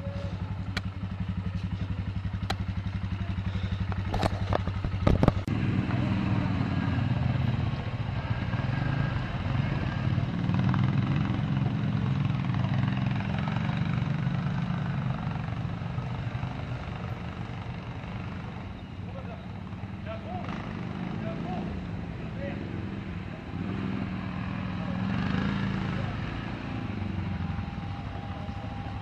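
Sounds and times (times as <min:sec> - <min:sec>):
quad bike engine: 0:00.0 - 0:29.0.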